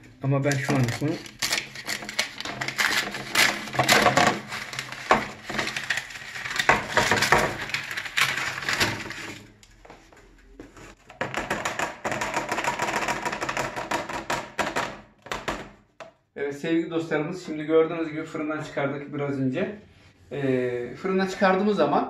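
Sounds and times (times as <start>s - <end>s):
rustling and rattling: 0.4s - 9.6s
baking paper crackling: 0.4s - 11.1s.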